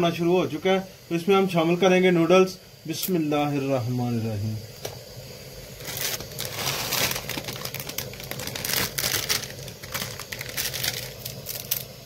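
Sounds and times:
plastic packets crinkling: 5.8s - 11.9s.

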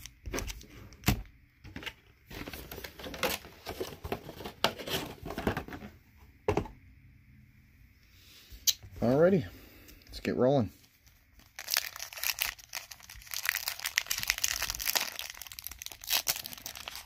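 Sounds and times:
foil wrapper crinkling: 11.0s - 17.0s.

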